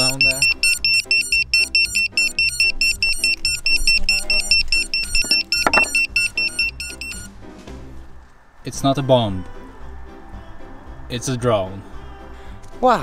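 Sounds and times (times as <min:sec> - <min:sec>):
drone buzzer beeping: 0:00.0 - 0:07.3
background music: 0:00.0 - 0:13.0.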